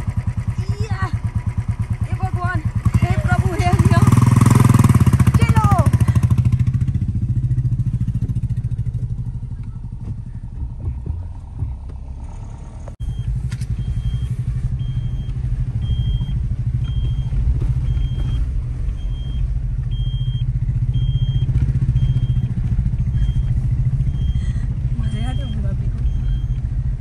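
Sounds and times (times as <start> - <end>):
motorcycle engine rumble: 0.0 - 27.0
high beep: 13.0 - 24.4, 25.0 - 26.6.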